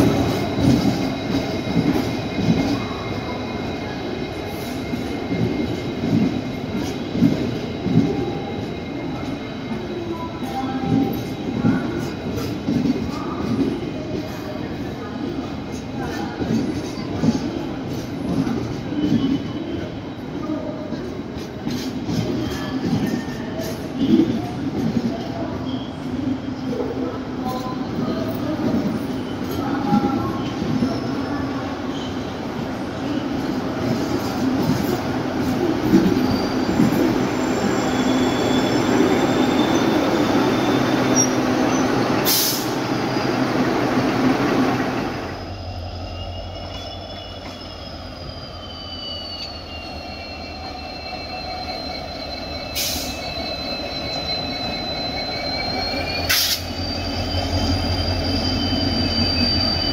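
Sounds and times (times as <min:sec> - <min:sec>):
deep train rumble: 0:00.0 - 0:08.6
diesel train humming on track: 0:00.0 - 0:25.0, 0:25.9 - 0:59.9
high wheel squeal: 0:28.9 - 0:59.9.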